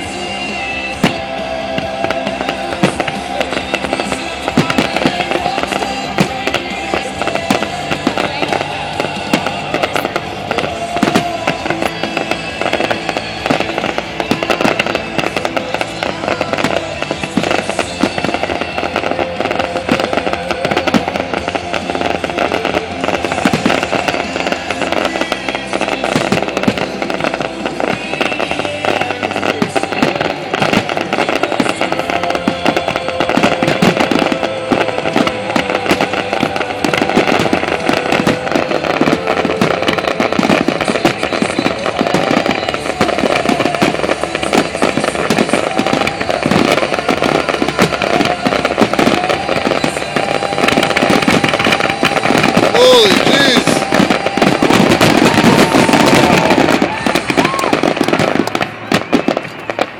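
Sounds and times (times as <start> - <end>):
fireworks bursting and crackling: 0.0 - 59.9.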